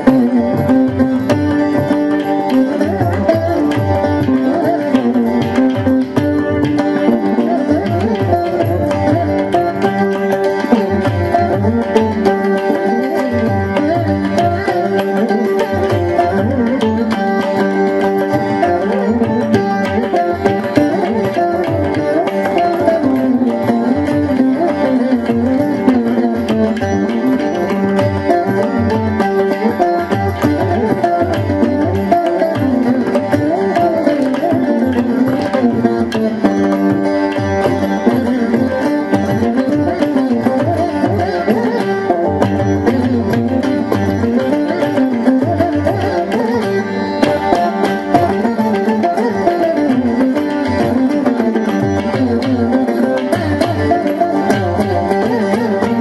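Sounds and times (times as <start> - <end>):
plucked string melody with bending notes: 0.0 - 56.0.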